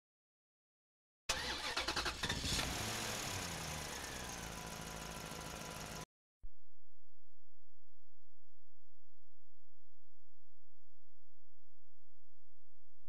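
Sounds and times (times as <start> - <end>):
vehicle engine running: 2.2 - 6.1.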